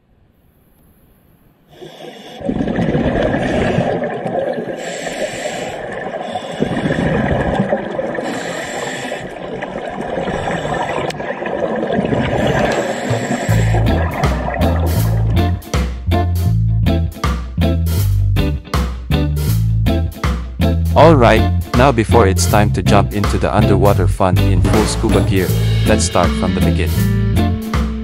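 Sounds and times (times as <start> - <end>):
diver breathing through regulator: 1.7 - 2.5, 3.3 - 9.6, 10.2 - 11.2, 12.2 - 15.4.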